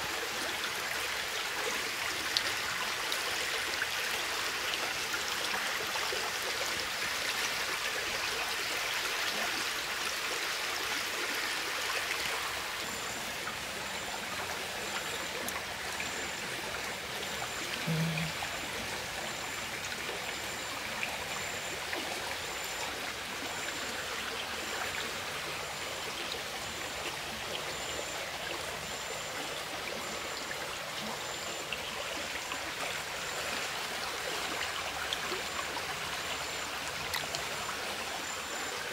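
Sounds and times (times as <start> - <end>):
stream water trickling: 0.0 - 38.9
faint high-pitched pulse: 12.3 - 23.9.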